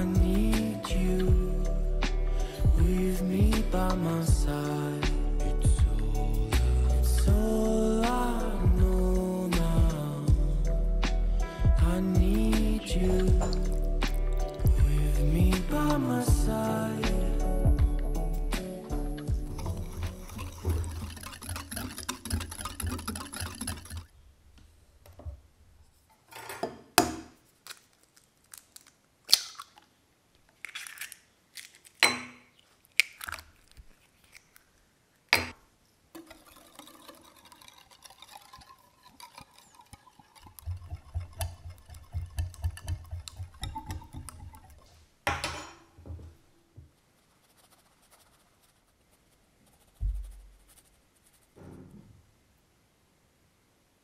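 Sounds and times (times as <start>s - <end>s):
wire whisk scraping glass bowl: 19.3s - 24.1s, 36.2s - 44.9s.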